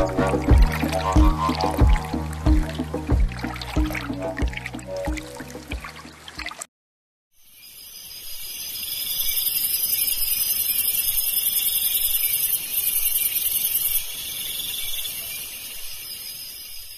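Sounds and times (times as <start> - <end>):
shrill insect chorus: 7.5 - 16.9.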